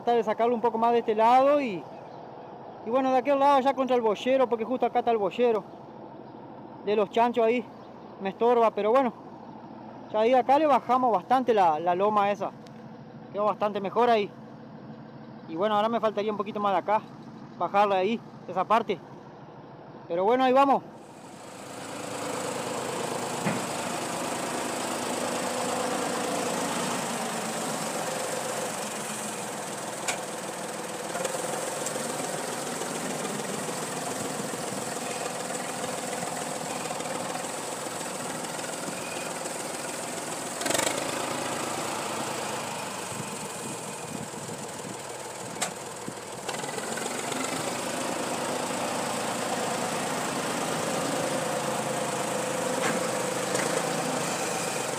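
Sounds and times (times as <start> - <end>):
tractor engine under load: 21.0 - 54.9.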